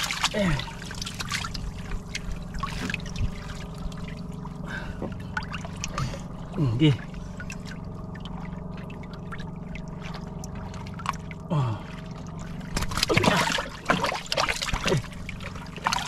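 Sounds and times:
fish splashing in water: 0:00.0 - 0:04.4, 0:12.2 - 0:16.0
steady low hum: 0:00.0 - 0:16.0.

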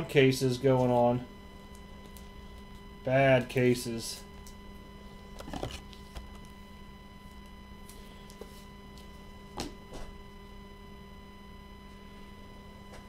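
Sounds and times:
steady electrical hum: 0:00.0 - 0:13.0.

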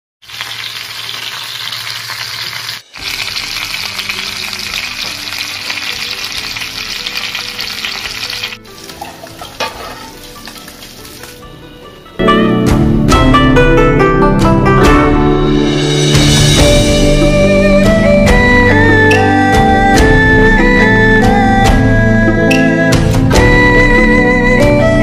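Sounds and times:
chicken frying in hot oil: 0:00.2 - 0:11.4.

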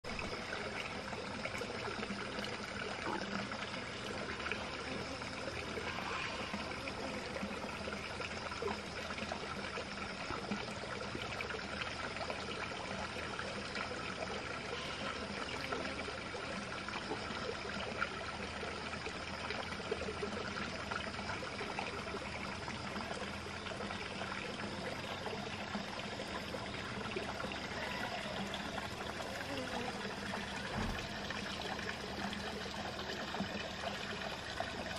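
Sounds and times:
water trickling: 0:00.0 - 0:34.9.

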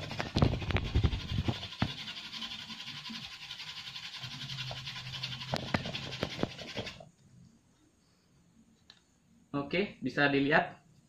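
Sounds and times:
wooden spindle grinding on wood: 0:00.0 - 0:07.0.

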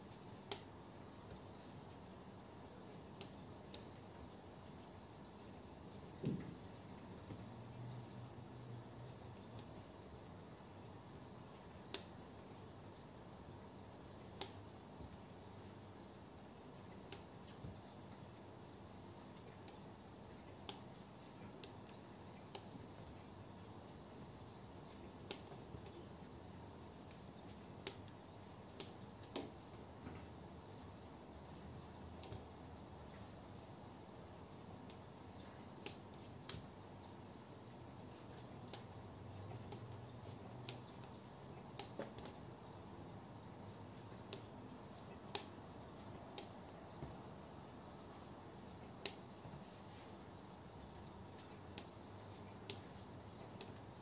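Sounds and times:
faint room hiss: 0:00.0 - 0:54.0.

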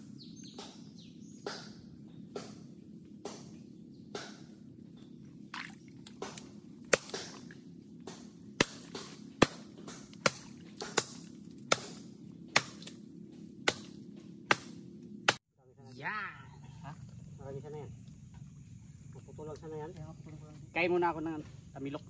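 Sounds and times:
blade chopping wood: 0:01.4 - 0:02.6, 0:03.2 - 0:04.5, 0:06.1 - 0:13.0, 0:13.6 - 0:15.4.

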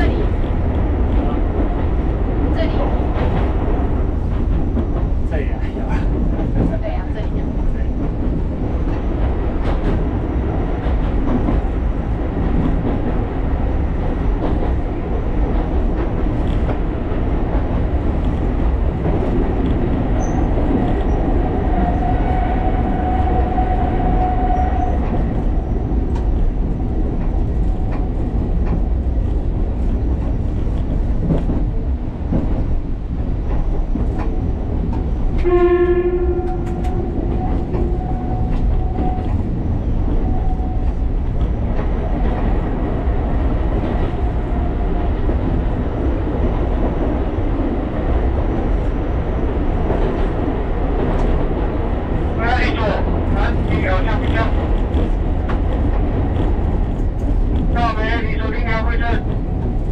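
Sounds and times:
train rumble: 0:00.0 - 0:59.9
train horn blast: 0:35.4 - 0:36.8.

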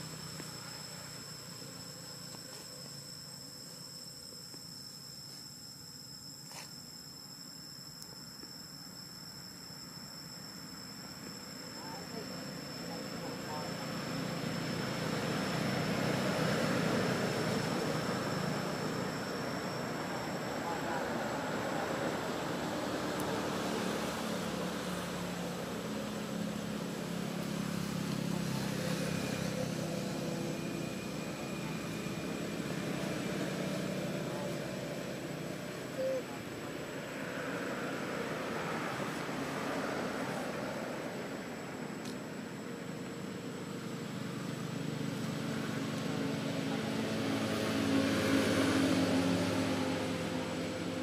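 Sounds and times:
low engine hum: 0:10.9 - 0:51.0.

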